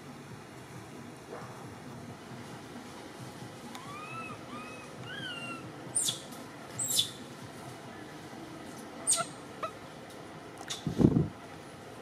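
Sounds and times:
baby monkey shrill squeals: 0:03.8 - 0:06.2, 0:06.8 - 0:07.2, 0:09.0 - 0:09.8
baby monkey coo calls: 0:03.8 - 0:07.2, 0:09.0 - 0:09.8.

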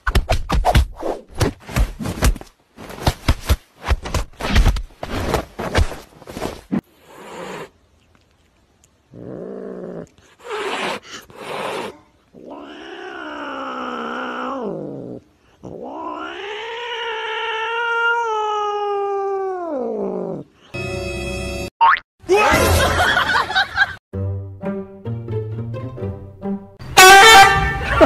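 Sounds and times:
cat hissing: 0:06.8 - 0:08.2, 0:09.2 - 0:18.4
cat yowling: 0:15.7 - 0:20.2.

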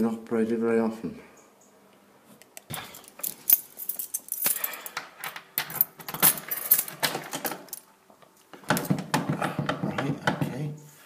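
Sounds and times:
keys jingling: 0:02.9 - 0:07.9.

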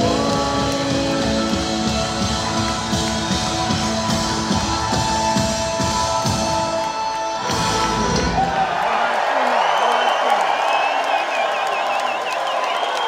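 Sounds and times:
electric guitar: 0:00.0 - 0:08.6
drum kit: 0:00.0 - 0:08.8
keyboards: 0:00.0 - 0:08.8.

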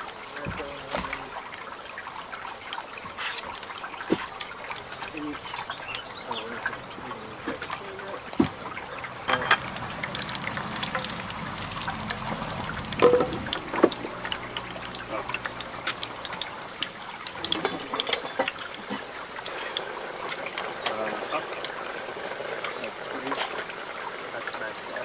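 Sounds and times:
stream trickling over rocks: 0:00.0 - 0:25.0
frying pan set down: 0:09.3 - 0:09.8, 0:12.9 - 0:14.1
metal grill grate clanks: 0:09.3 - 0:09.8.

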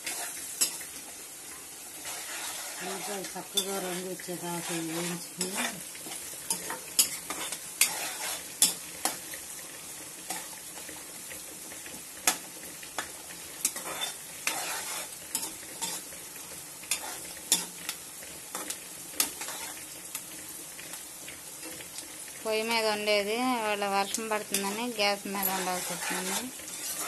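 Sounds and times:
onions sizzling in hot oil: 0:00.0 - 0:27.0
spoon scraping and clinking pan: 0:06.5 - 0:09.2, 0:25.4 - 0:27.0.

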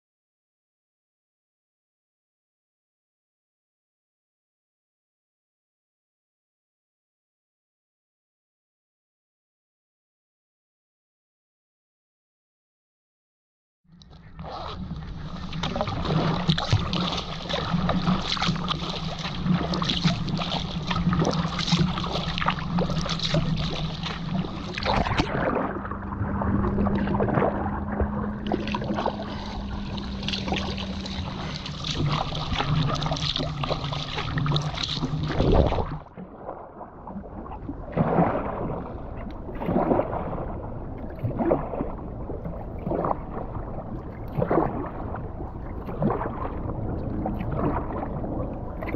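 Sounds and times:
small splashes: 0:14.0 - 0:48.9
water lapping: 0:14.0 - 0:48.9
water rushing along kayak hull: 0:14.0 - 0:48.9.

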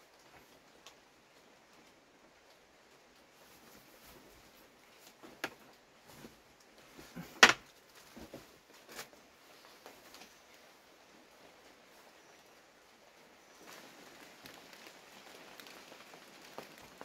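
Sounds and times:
low background hiss: 0:00.0 - 0:17.0
sharp knocks and snaps: 0:07.4 - 0:07.7.

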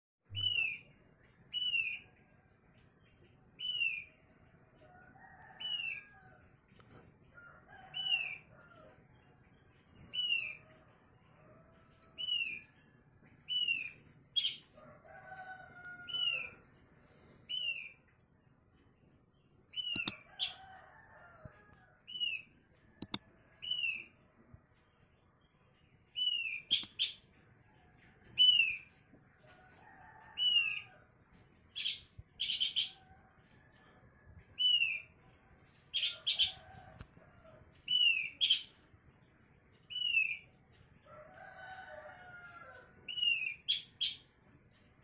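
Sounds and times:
sharp clicks: 0:19.8 - 0:20.2, 0:23.0 - 0:23.2, 0:26.7 - 0:27.0.

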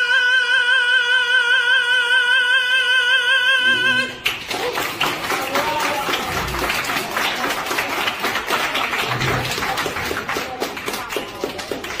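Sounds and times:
crowd applauding: 0:04.1 - 0:12.0.

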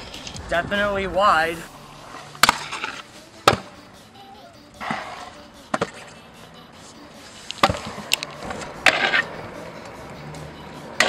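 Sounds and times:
scooter clacking on concrete: 0:07.6 - 0:11.0.

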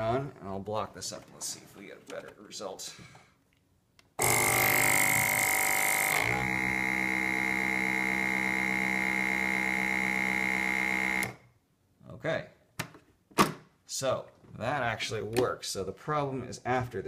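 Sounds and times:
vacuum pump whining: 0:04.2 - 0:11.4.

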